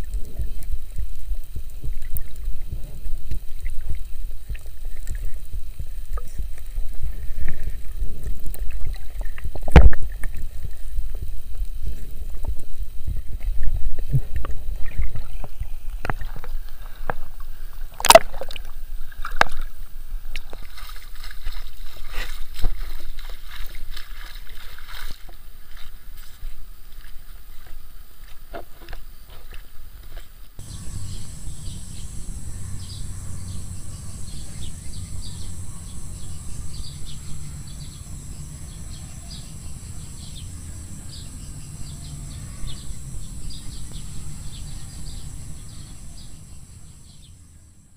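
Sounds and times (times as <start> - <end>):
muffled underwater rumble: 0.0 - 24.0, 30.6 - 47.9
water sloshing: 13.4 - 27.6.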